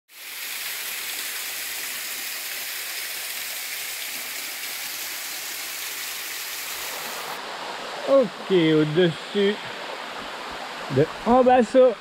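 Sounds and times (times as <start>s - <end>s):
waterfall rushing: 0.2s - 12.0s.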